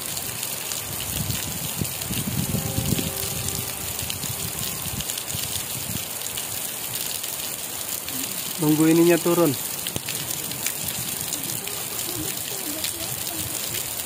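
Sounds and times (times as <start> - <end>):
heavy rain hiss: 0.0 - 14.0
low rumble: 1.8 - 6.0.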